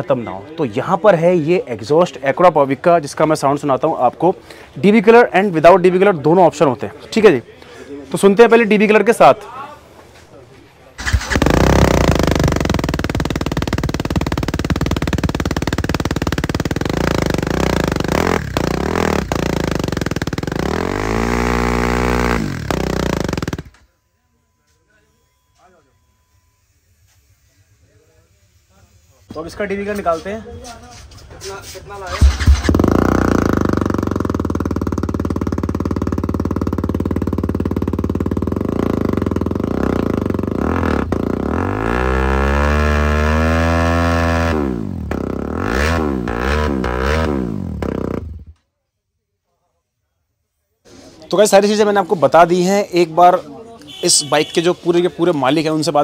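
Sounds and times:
motorcycle engine revving: 11.0s - 23.8s, 32.1s - 48.6s.

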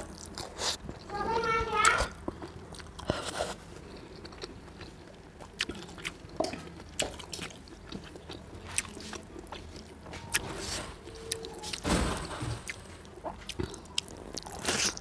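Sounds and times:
person chewing and lip smacking: 2.2s - 10.5s, 13.1s - 15.0s.

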